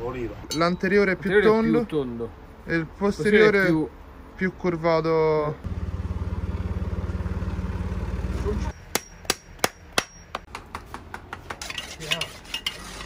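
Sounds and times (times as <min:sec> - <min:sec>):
hammer striking horseshoe nails: 0:08.7 - 0:11.8.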